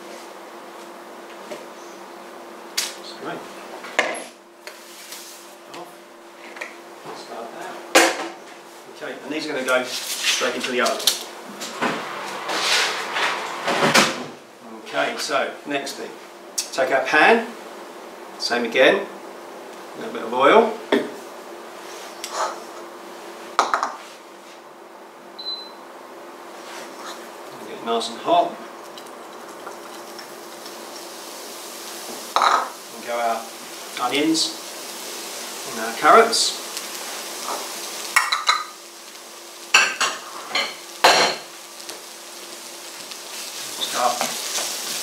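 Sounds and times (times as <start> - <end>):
short high beep: 25.4 - 25.8
vegetables sizzling in oil: 28.6 - 45.0
glass bottle clinking on worktop: 32.4 - 32.7.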